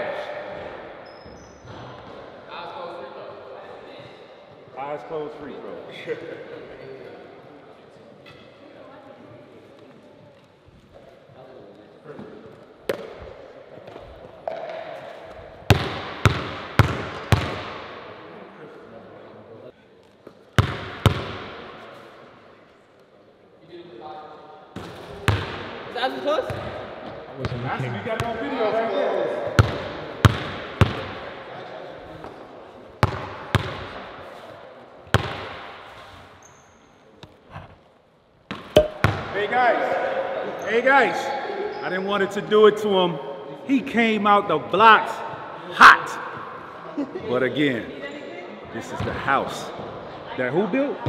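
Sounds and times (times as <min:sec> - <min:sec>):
basketball bouncing on gym floor: 0:15.7 - 0:17.8, 0:20.6 - 0:21.5, 0:33.0 - 0:33.9, 0:35.1 - 0:35.6, 0:38.5 - 0:39.4
basketball bouncing on hardwood floor: 0:20.6 - 0:21.3, 0:38.5 - 0:39.3.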